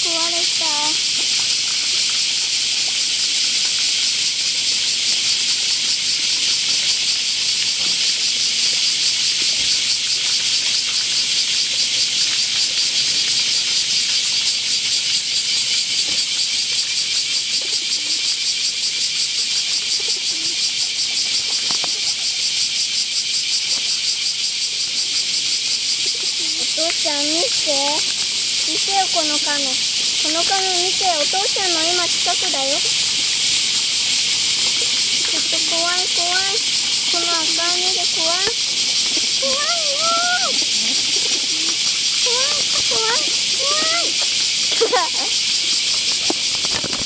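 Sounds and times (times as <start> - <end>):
pigeons pecking feed: 0.0 - 2.3, 19.8 - 22.2, 26.0 - 47.0
cicada chorus shrilling: 0.0 - 47.0.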